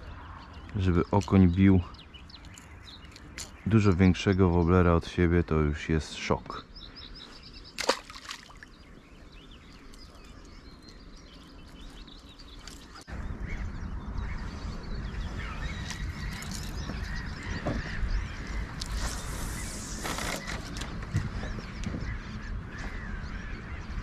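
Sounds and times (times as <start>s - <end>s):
bird calls: 0.0s - 24.0s
wind rumble on microphone: 8.8s - 24.0s.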